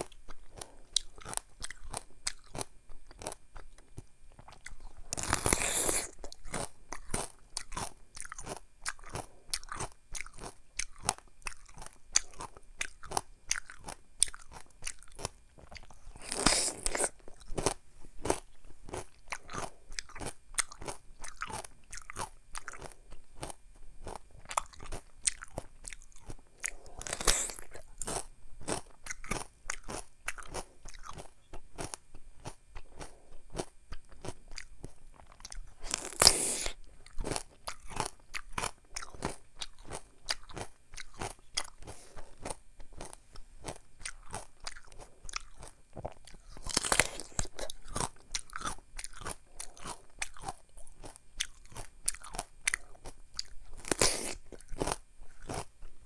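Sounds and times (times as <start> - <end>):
wet crunching chews: 0.0 - 56.0
crunchy bites into melon: 26.6 - 31.2, 35.5 - 50.6, 52.1 - 55.7.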